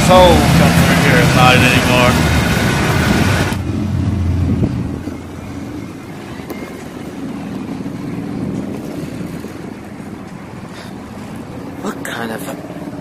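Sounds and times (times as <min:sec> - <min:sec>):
car engine pulling away: 0:00.0 - 0:09.4.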